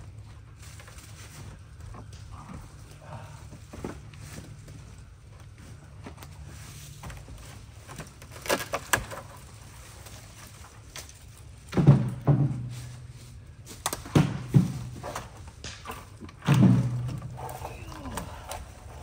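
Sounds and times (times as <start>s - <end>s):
heavy wooden thuds: 11.7s - 13.1s, 14.0s - 17.6s.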